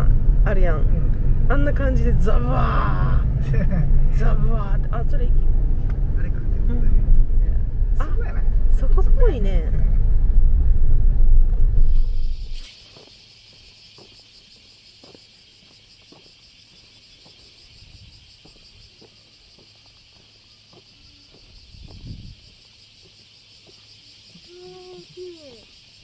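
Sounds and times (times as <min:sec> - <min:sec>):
low rumble: 0:00.0 - 0:12.6
insects chorus: 0:00.0 - 0:26.0.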